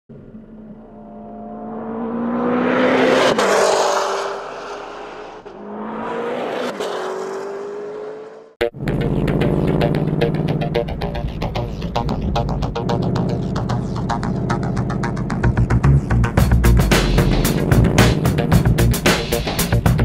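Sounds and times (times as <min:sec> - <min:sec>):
cars speeding past: 0:00.1 - 0:08.6.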